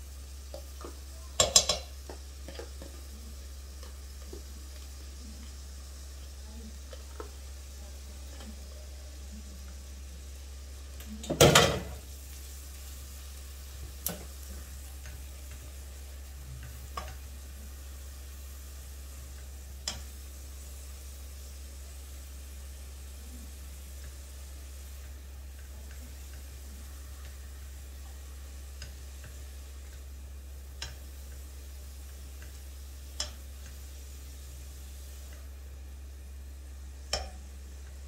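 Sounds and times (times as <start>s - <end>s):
food sizzling in a pot: 0.0s - 38.0s
spatula knocking on a pot: 0.8s - 3.0s, 37.1s - 37.4s.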